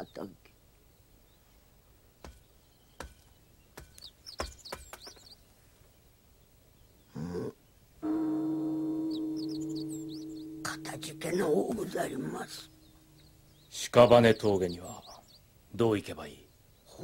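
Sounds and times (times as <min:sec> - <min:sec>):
small birds chirping: 0:00.0 - 0:17.0
bell-like ringing tone: 0:08.0 - 0:13.2.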